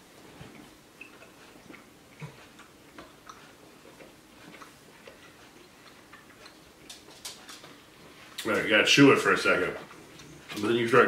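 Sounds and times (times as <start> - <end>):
gum chewing clicks and smacks: 0.5 - 8.5.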